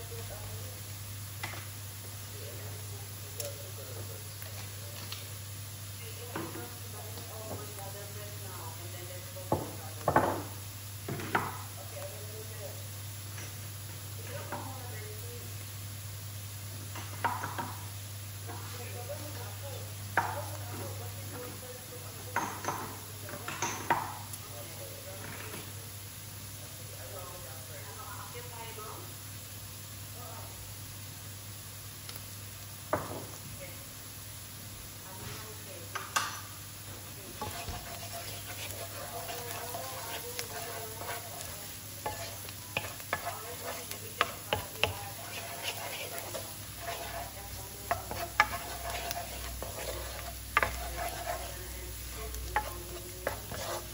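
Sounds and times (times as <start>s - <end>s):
onions sizzling in a frying pan: 0.0s - 53.9s
spoon knocking against pan: 22.4s - 22.9s, 42.0s - 51.5s
wooden spoon stirring: 36.8s - 53.9s.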